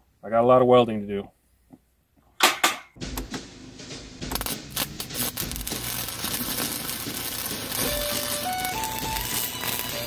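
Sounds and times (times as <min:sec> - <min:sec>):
welder arc crackling: 0:04.2 - 0:10.0.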